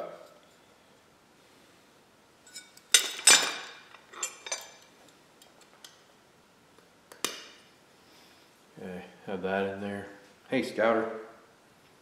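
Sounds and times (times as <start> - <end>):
metal parts clinking and clanking: 2.5 - 4.9.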